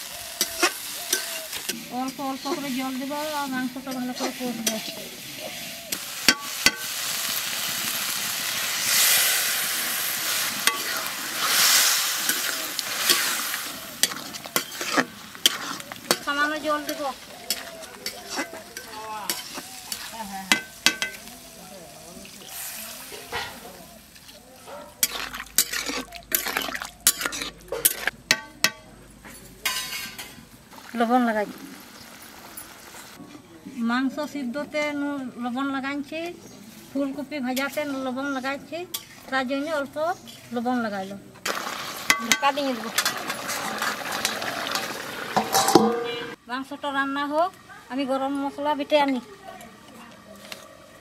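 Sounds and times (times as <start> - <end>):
spatula scraping a pan: 0.0 - 7.4, 9.9 - 21.4, 25.0 - 28.2, 37.6 - 40.8
hissing and sizzling in a pan: 0.0 - 28.8, 29.6 - 33.2, 35.5 - 51.0
metal ladle clinking in a pan: 14.0 - 21.3, 25.0 - 30.4, 45.4 - 46.4.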